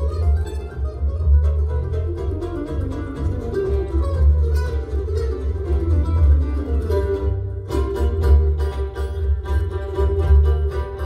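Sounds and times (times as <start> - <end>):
fiddle: 0.0 - 11.0
guitar: 0.0 - 11.0
mandolin: 0.0 - 11.0
upright bass: 0.0 - 11.0.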